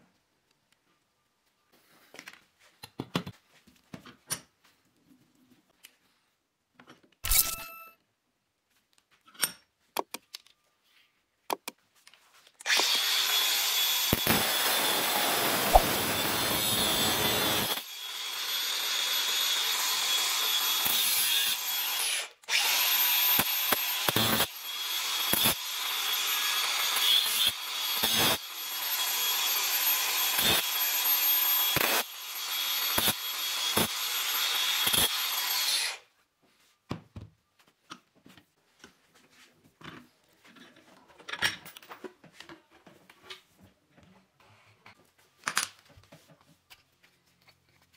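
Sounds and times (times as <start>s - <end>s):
angle grinder whining on steel: 12.7s - 36.1s.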